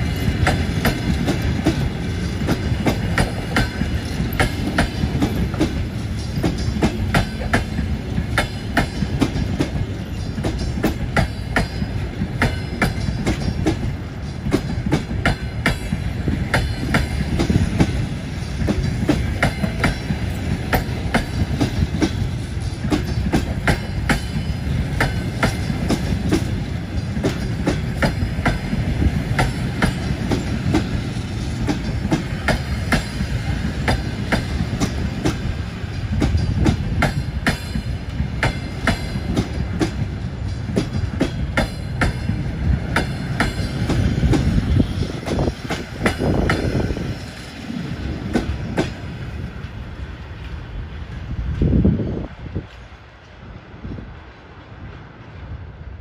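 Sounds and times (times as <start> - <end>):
train wheels clicking over rail joints: 0.0 - 54.9.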